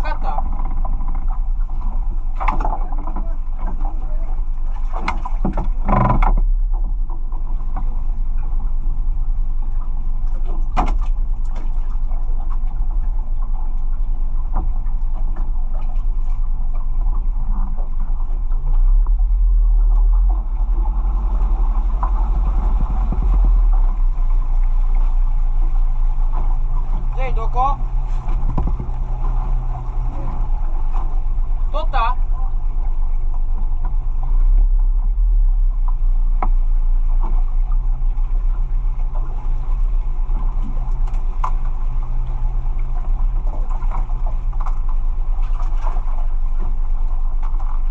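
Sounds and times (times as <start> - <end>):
boat engine rumbling: 0.0 - 47.9
knocks and clatters: 28.3 - 29.0.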